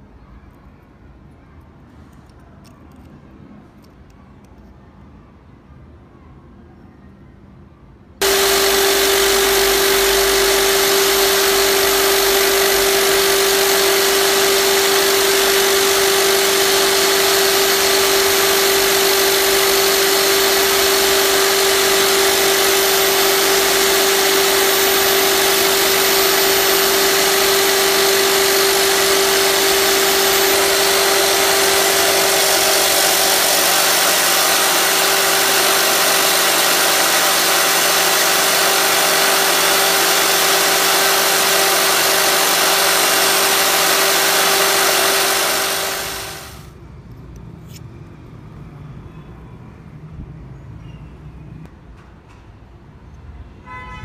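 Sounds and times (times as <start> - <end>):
power tool motor humming: 8.2 - 46.7.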